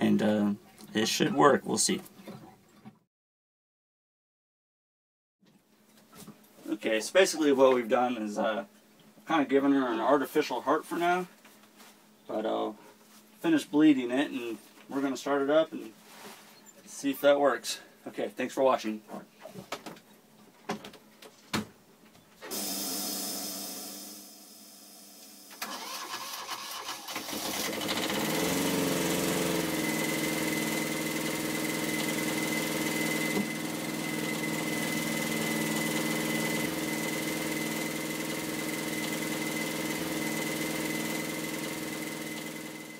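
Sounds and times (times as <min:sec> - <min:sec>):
diesel engine cranking and idling: 0:25.6 - 0:42.9.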